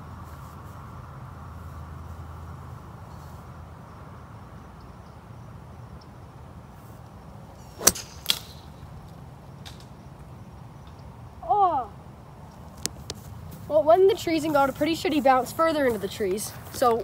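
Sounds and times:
golf club striking ball: 7.7s - 8.9s.

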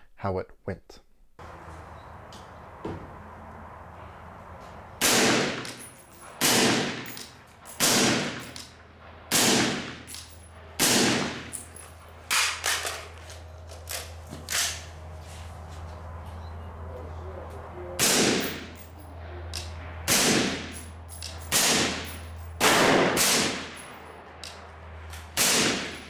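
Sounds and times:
suppressed rifle shots: 5.0s - 5.8s, 6.4s - 7.2s, 7.8s - 8.6s, 9.3s - 10.2s, 10.8s - 11.5s, 21.5s - 23.8s, 25.4s - 26.0s
quieter sharp cracks: 5.0s - 11.6s, 18.0s - 18.8s.

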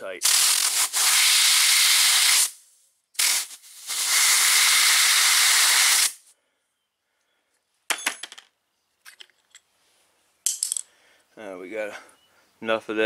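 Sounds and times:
compressed air hissing: 0.2s - 6.3s.

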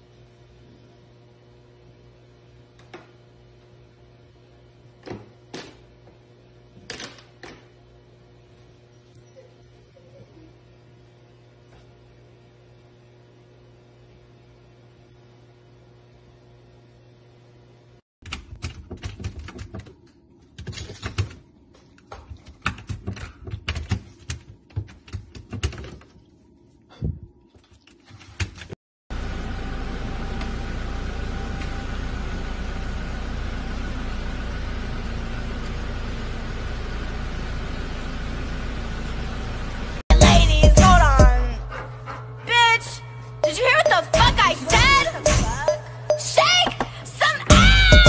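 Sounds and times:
steady low hum: 39.4s - 48.0s.

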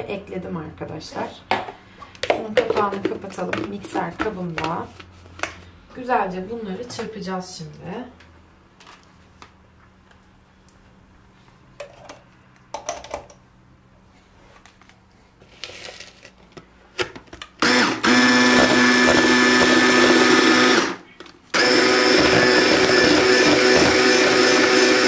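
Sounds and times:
electric mixer whining: 17.6s - 25.0s.

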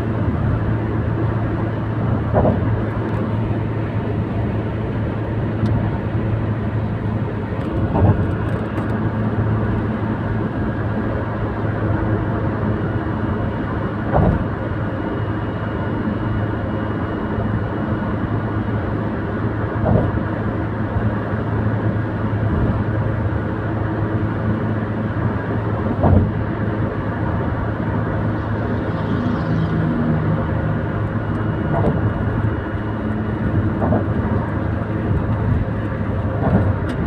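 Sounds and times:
car tyre and engine noise: 0.0s - 37.0s
wheels thumping over road joints: 2.1s - 3.4s, 7.4s - 8.9s, 14.0s - 14.7s, 19.7s - 20.3s, 25.8s - 27.5s, 30.8s - 37.0s.

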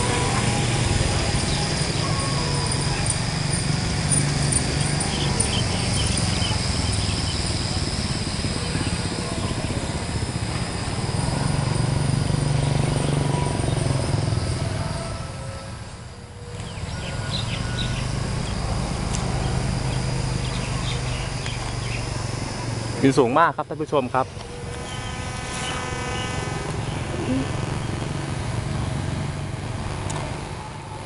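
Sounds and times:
high insect whine: 0.0s - 31.0s
small birds chirping: 1.2s - 7.8s, 16.4s - 22.8s, 23.9s - 27.8s.

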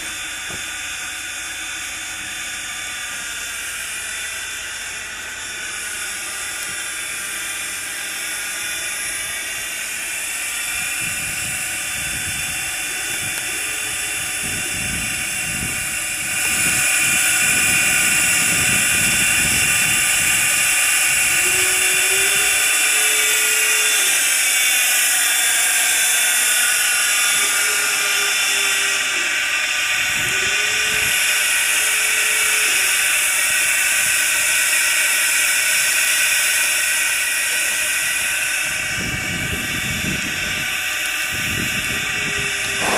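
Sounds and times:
high-pitched whine: 0.0s - 42.9s
steam locomotive hissing steam: 0.0s - 42.9s.

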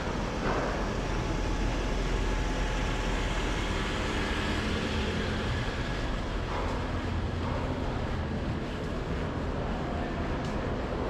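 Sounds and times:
low rumble of traffic: 0.0s - 11.0s.

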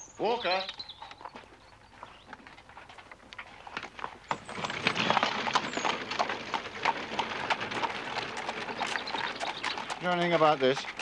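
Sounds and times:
hooves clopping on gravel: 0.2s - 11.0s
wheels crunching over gravel: 0.5s - 11.0s.

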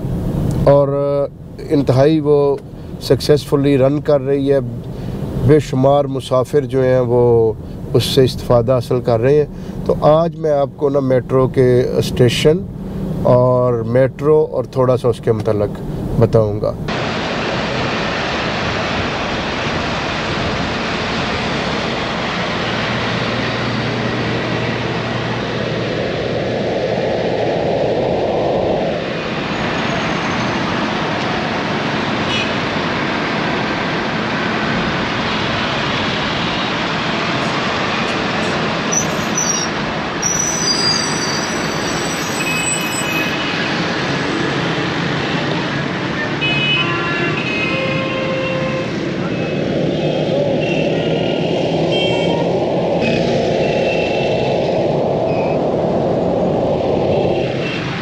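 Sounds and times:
road traffic passing: 0.0s - 58.0s
brief high squeals: 38.9s - 43.4s.

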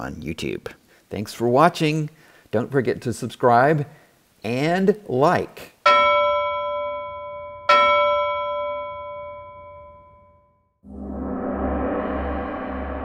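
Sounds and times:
bell-like chimes: 5.9s - 10.7s
gong-like swell with low hum: 10.8s - 13.0s.

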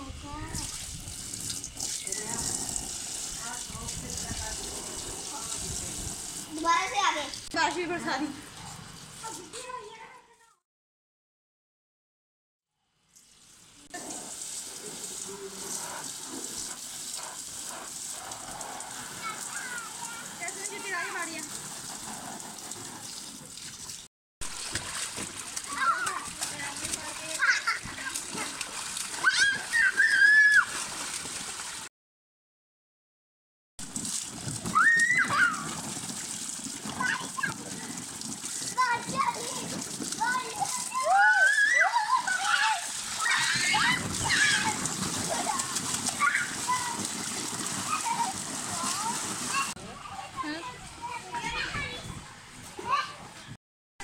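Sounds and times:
hose water spattering into pool: 0.4s - 10.2s, 13.1s - 31.9s, 33.8s - 52.2s
child squealing: 29.2s - 30.7s, 34.7s - 35.7s, 40.8s - 44.8s.

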